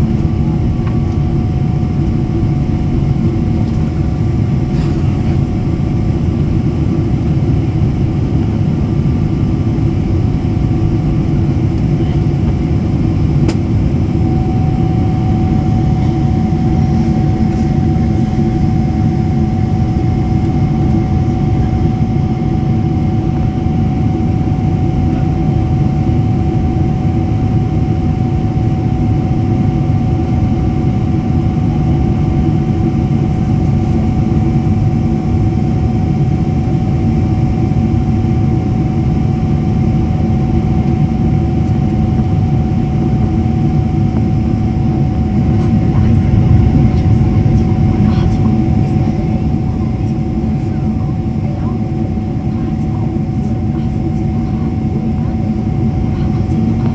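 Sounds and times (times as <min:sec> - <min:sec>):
airliner engine roar in cabin: 0:00.0 - 0:56.9.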